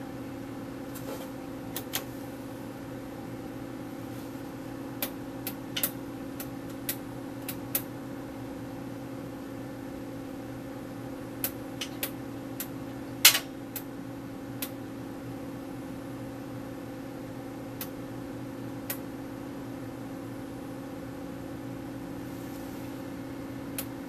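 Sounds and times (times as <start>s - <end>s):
sharp switch clicks: 11.4s - 13.9s.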